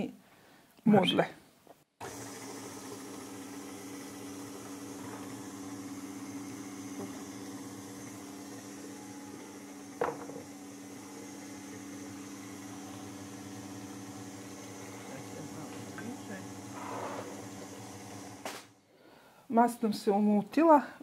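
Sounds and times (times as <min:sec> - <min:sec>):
stand mixer running: 0:02.0 - 0:18.7.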